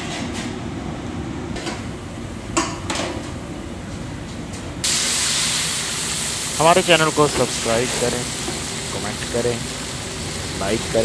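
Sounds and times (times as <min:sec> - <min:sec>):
fish frying in hot oil: 0:04.8 - 0:11.0.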